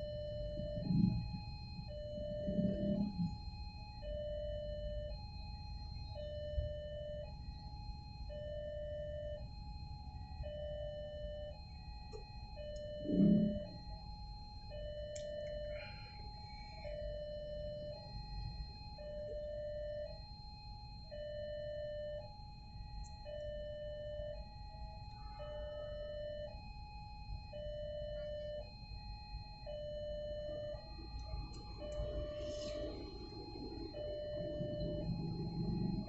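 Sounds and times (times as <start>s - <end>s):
idling traffic hum: 0.0s - 8.2s, 30.5s - 36.0s
two-tone level-crossing alarm: 0.0s - 36.0s.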